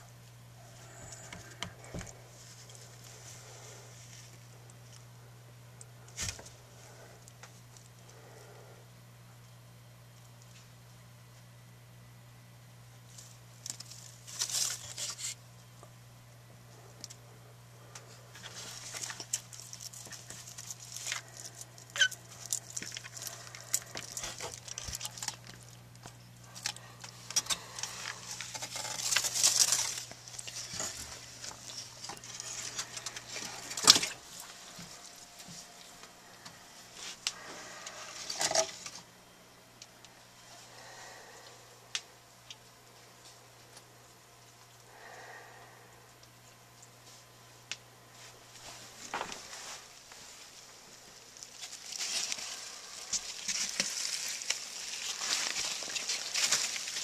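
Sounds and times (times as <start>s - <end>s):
rustling and scratching: 0.0s - 8.6s, 13.0s - 15.9s, 16.7s - 39.1s, 48.1s - 57.0s
low electrical hum: 0.0s - 57.0s.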